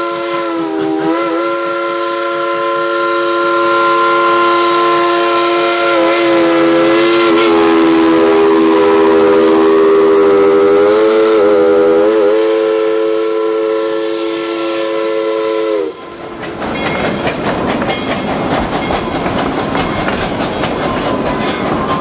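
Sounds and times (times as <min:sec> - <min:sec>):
steam locomotive whistle: 0:00.0 - 0:16.3
train wheels clicking over rail joints: 0:15.9 - 0:22.0.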